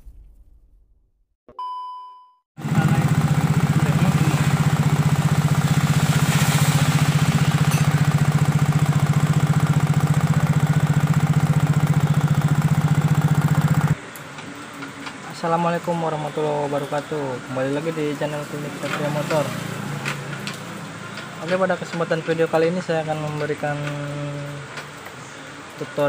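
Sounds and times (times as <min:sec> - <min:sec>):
scooter engine idling with clattering: 0:02.6 - 0:14.0, 0:18.2 - 0:25.0.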